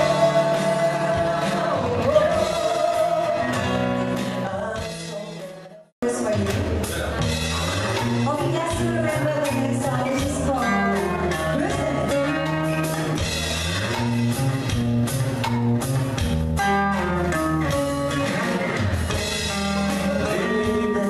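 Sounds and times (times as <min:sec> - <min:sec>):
guitar instrumental: 0:00.0 - 0:21.0
light drum beat: 0:06.2 - 0:21.0.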